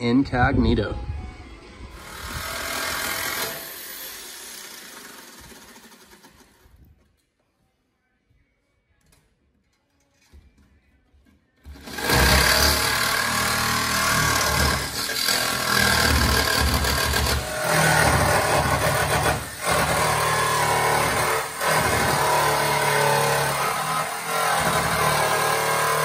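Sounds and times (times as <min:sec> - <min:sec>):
jigsaw cutting sheet metal: 0:02.0 - 0:06.8, 0:11.6 - 0:26.0.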